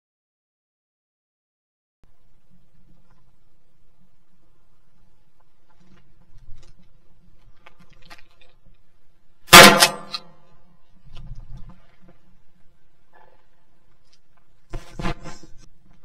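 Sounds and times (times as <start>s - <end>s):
shotgun shot: 9.5s - 10.2s.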